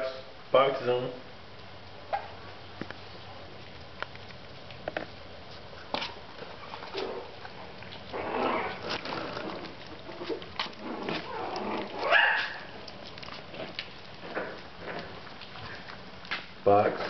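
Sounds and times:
puppies yipping and whining: 6.4 - 13.2
puppy yelp: 10.1 - 12.8.

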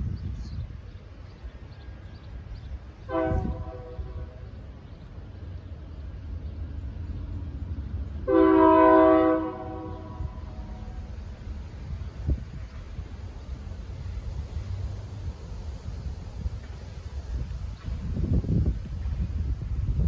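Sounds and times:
rail cars rumbling past: 0.0 - 20.0
locomotive air horn blasts: 3.1 - 4.5, 8.3 - 10.9.

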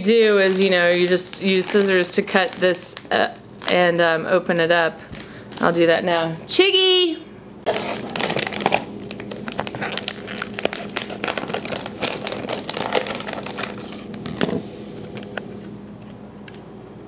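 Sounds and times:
scissors cutting plastic bag: 0.0 - 3.8, 7.7 - 14.6
plastic crinkling: 0.0 - 4.0, 7.6 - 15.3.

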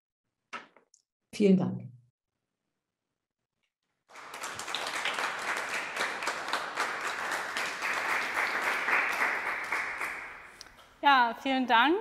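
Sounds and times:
applause: 4.1 - 10.6.

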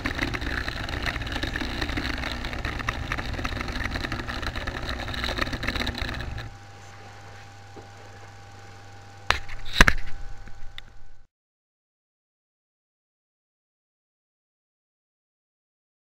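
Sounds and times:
wheels clicking on track: 0.0 - 6.5
model train motor whirr: 0.0 - 6.6
faint steady hum: 0.0 - 11.3.

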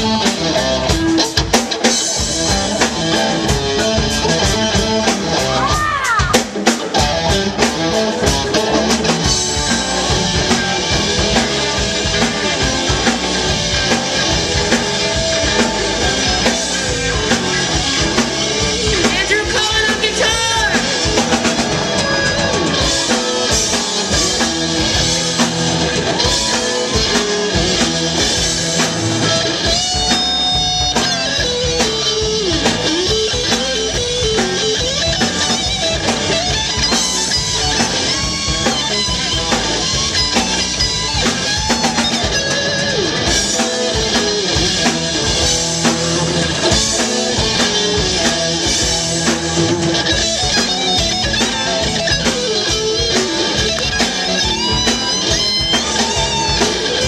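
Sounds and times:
bass guitar: 0.0 - 57.0
distorted electric guitars: 0.0 - 57.0
drum kit: 0.0 - 57.0
girl singing lead: 5.6 - 6.4.

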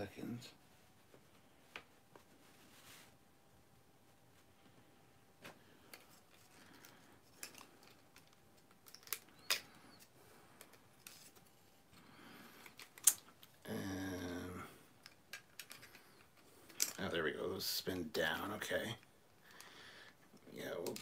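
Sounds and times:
plastic toy parts clicking: 12.6 - 13.3, 15.0 - 17.0, 20.8 - 21.0
man humming: 13.6 - 14.8.

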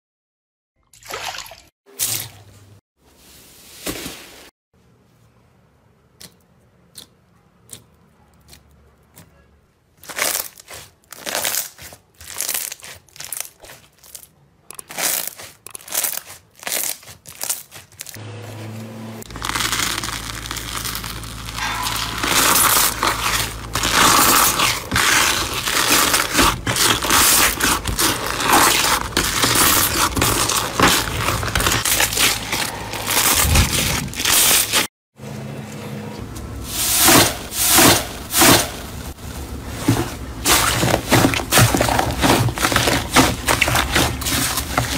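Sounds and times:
bubble slime crackling: 19.3 - 34.8.

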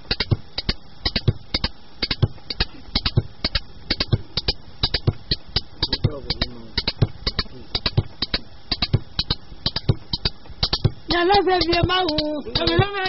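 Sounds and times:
sharp dry percussion strokes: 0.0 - 13.0
deep drum beat: 3.0 - 13.0.

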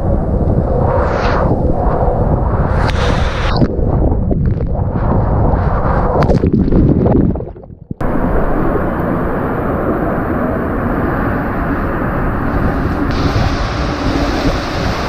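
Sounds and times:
water rushing through slide tube: 12.2 - 15.0.

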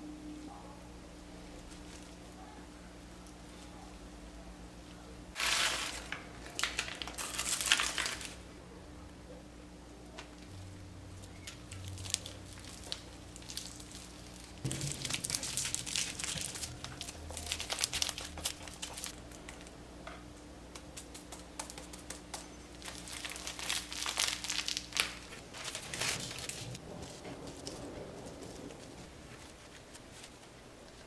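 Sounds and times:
crisp material crinkling: 5.4 - 8.4, 11.2 - 19.2, 22.8 - 31.0.

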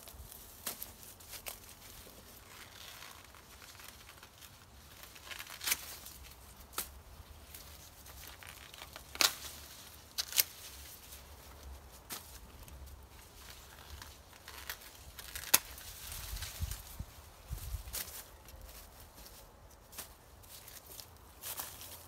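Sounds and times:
corn leaves rustling: 0.0 - 22.0
corn ears snapping off: 8.2 - 10.5, 14.0 - 16.5.

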